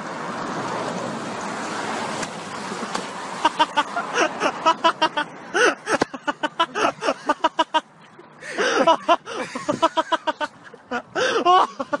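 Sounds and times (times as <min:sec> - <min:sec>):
people laughing hard: 0:03.4 - 0:12.0
whoops of laughter: 0:08.5 - 0:12.0.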